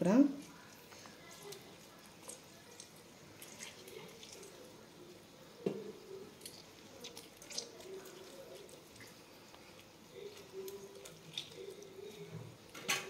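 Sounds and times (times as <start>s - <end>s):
small wet clicks: 0.4s - 4.7s, 6.3s - 12.3s
juice dripping: 0.4s - 13.0s.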